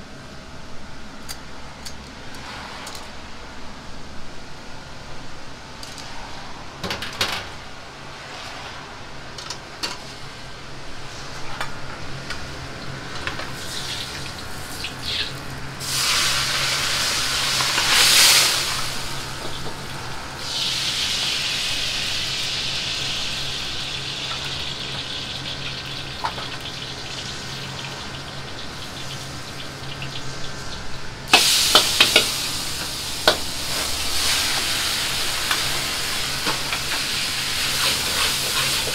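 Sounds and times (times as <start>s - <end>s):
food sizzling in wok: 13.5s - 38.9s
wok clanking: 31.3s - 34.6s, 35.3s - 38.9s
steady hiss: 31.3s - 38.9s.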